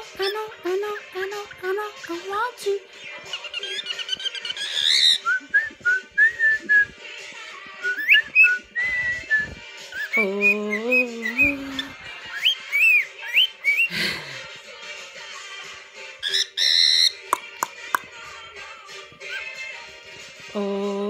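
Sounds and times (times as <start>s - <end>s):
background pop music: 0.0s - 21.0s
cockatiel whistling: 3.3s - 6.8s, 7.8s - 10.6s, 12.3s - 13.9s, 16.2s - 17.2s.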